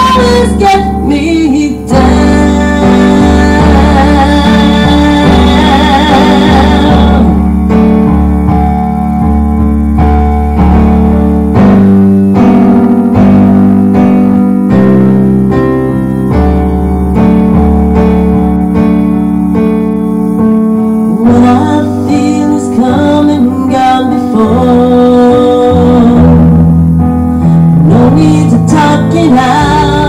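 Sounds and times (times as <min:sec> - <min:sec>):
woman singing: 0:00.0 - 0:07.4, 0:21.2 - 0:26.6, 0:27.8 - 0:30.0
electronic keyboard piano chords: 0:00.0 - 0:30.0.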